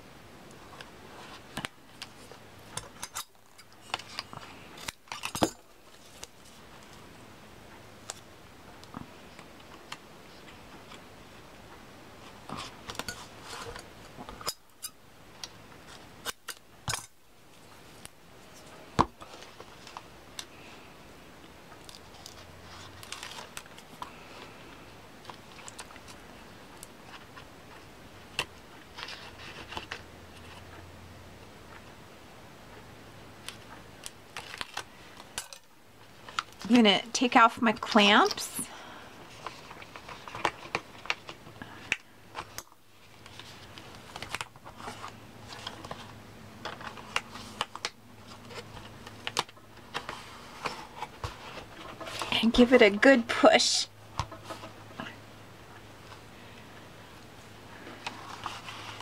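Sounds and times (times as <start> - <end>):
tape rustling: 21.7 - 30.8, 33.4 - 36.8, 37.8 - 53.5, 57.7 - 59.0.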